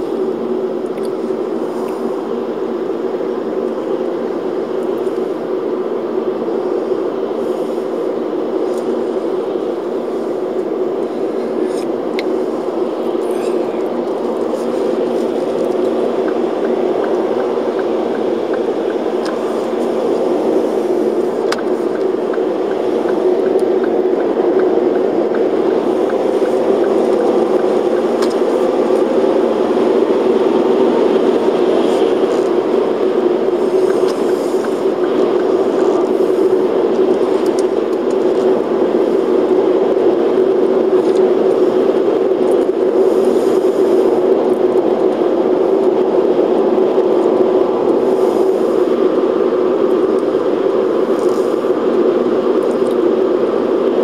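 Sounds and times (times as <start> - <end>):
car tyre and engine drone: 0.0 - 54.0.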